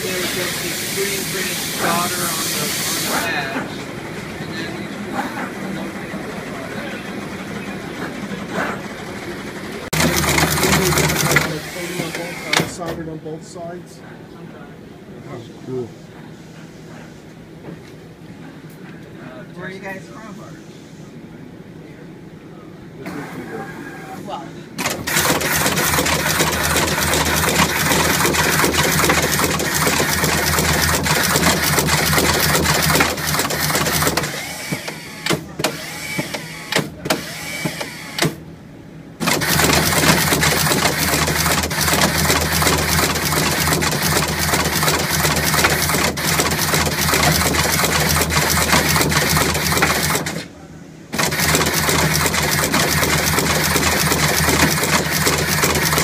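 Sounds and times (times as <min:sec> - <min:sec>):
machine clicking chatter: 0:05.8 - 0:12.7, 0:24.8 - 0:38.2, 0:39.2 - 0:50.4, 0:51.1 - 0:56.0.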